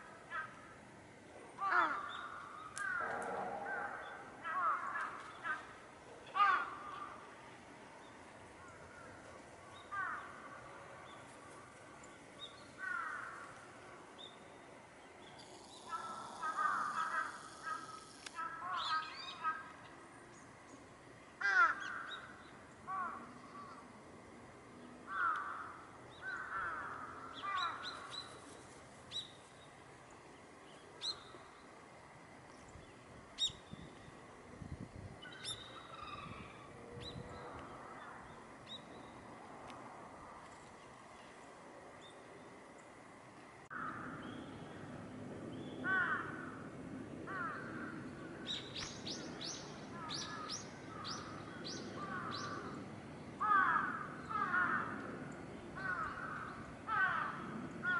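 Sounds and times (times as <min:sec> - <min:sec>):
gulls and crows calling: 0:00.0 - 0:00.9, 0:01.5 - 0:07.3, 0:08.6 - 0:10.8, 0:12.8 - 0:13.6, 0:15.7 - 0:19.9, 0:21.4 - 0:23.9, 0:25.1 - 0:29.2, 0:35.2 - 0:38.8, 0:43.7 - 0:44.9, 0:45.6 - 0:57.9.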